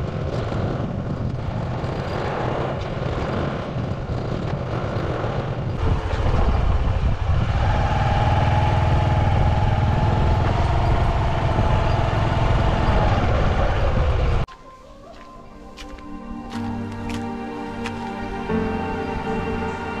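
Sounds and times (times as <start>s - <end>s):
motorcycle engine running: 0.0s - 14.4s
road and wind rumble: 0.0s - 14.5s.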